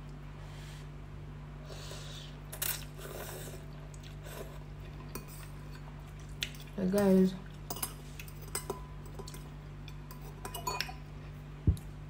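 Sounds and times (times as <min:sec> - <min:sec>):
steady low hum: 0:00.0 - 0:12.0
slurping and chewing: 0:01.9 - 0:06.8
fork clinking against a bowl: 0:07.7 - 0:11.0.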